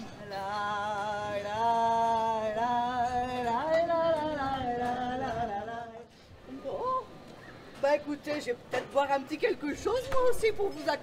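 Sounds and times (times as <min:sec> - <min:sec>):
slow sung melody: 0:00.0 - 0:06.5.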